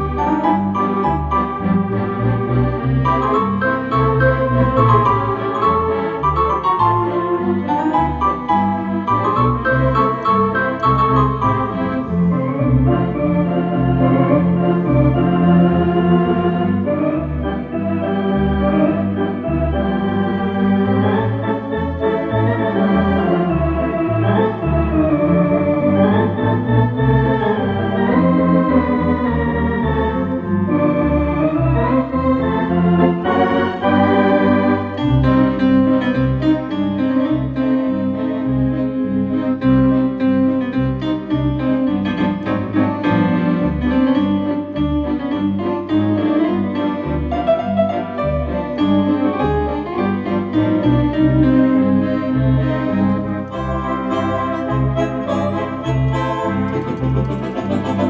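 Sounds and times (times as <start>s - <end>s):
electronic organ playing: 0.0s - 58.0s.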